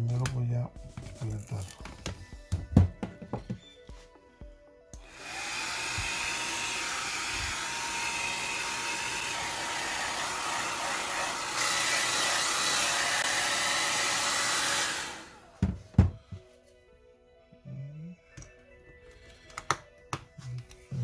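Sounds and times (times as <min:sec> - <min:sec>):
hair dryer blowing: 0:05.0 - 0:15.6.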